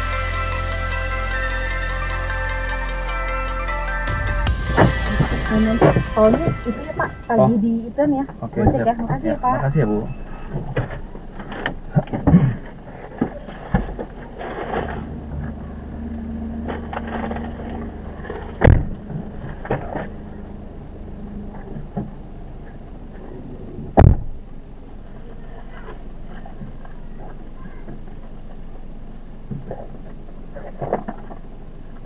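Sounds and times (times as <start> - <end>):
car engine running: 0.0 - 32.0
sharp thumps: 4.0 - 9.3, 10.0 - 22.9, 23.8 - 24.5.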